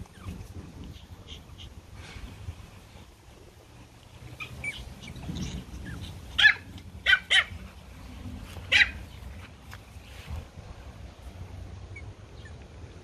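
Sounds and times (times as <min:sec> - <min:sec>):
small dogs barking: 0:04.3 - 0:07.8, 0:08.5 - 0:09.2
dog squeaks: 0:04.4 - 0:06.7.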